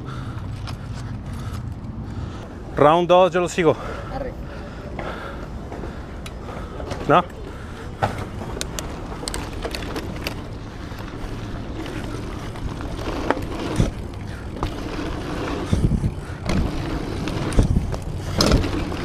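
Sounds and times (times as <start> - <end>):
bike chain rattling: 0.0 - 2.4, 6.4 - 19.0
bike tyres rumbling on dirt: 5.0 - 19.0.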